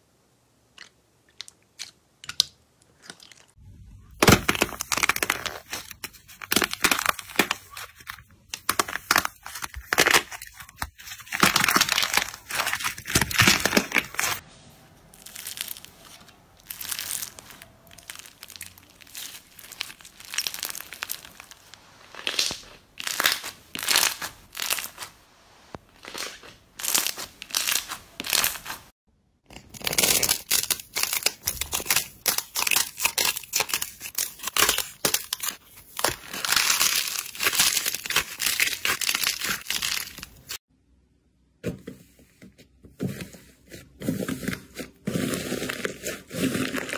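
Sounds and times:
clay crust cracking: 0.8s - 14.4s, 15.2s - 28.9s
thick slime tearing: 29.6s - 40.6s
slime squelching: 43.4s - 46.9s.

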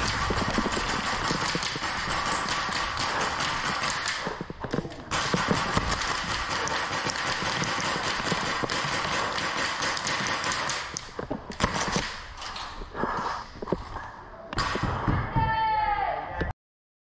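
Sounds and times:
steady rushing noise: 0.0s - 4.4s
quick clicks and impacts: 0.0s - 13.8s.

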